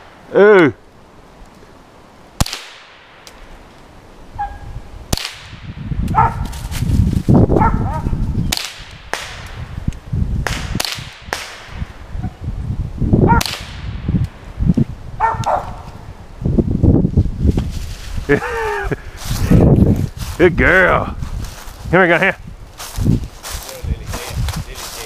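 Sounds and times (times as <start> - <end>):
gunshots: 2.4 - 3.2, 8.5 - 9.6, 10.4 - 11.8
wind on microphone: 4.2 - 25.0
dog barking: 4.4 - 4.7, 6.1 - 6.5, 7.6 - 8.2, 15.2 - 15.8.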